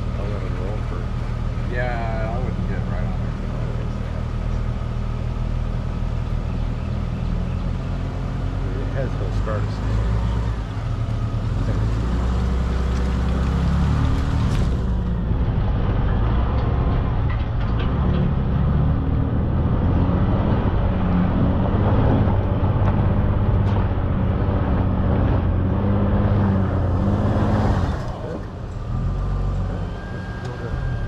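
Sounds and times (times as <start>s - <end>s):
truck engine hum: 0.0s - 31.0s
tyres on dirt trail: 0.0s - 31.0s.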